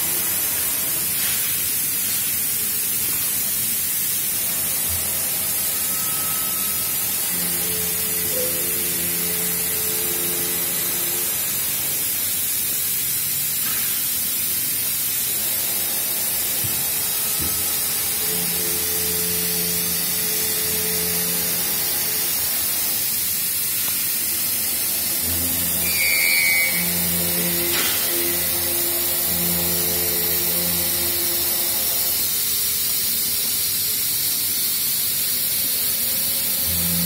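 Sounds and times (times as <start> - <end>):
factory background hiss: 0.0 - 37.0
short high chirp: 25.8 - 27.6.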